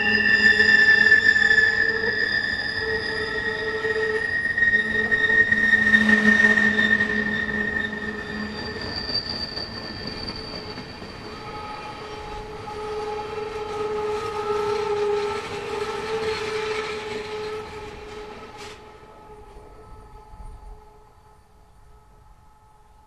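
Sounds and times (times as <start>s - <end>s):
rumble of passing train cars: 0.0s - 23.0s
train wheels squealing: 0.0s - 23.0s.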